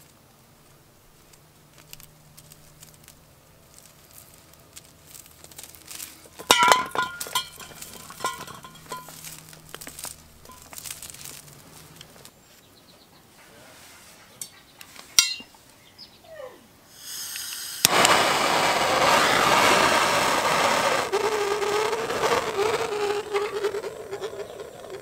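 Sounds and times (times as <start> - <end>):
gas hissing: 6.2 - 11.4, 16.9 - 25.0
torch flame rushing: 6.3 - 11.5, 17.0 - 25.0
torch ignition click: 17.2 - 21.1.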